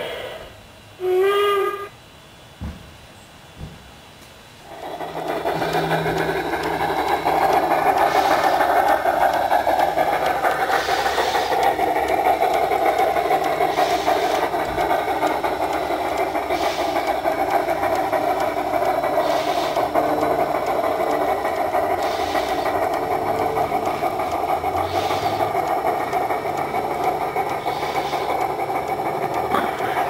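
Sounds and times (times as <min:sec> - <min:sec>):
steam locomotive clatter from speaker: 0:04.6 - 0:30.0
short steam hiss: 0:06.7 - 0:17.7, 0:19.1 - 0:20.0.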